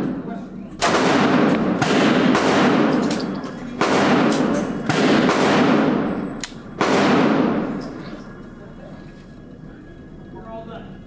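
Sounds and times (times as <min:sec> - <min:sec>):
pistol shots with echo: 0:00.8 - 0:08.0.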